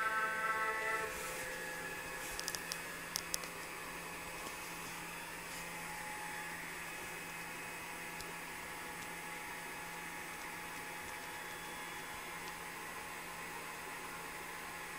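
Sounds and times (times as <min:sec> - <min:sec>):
low electrical hum: 0:00.0 - 0:14.9
constant hiss: 0:01.0 - 0:06.0.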